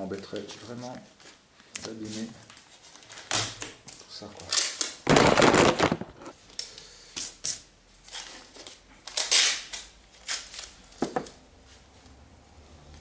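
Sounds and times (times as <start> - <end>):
masking tape ripping: 4.5 - 6.3, 9.0 - 10.8.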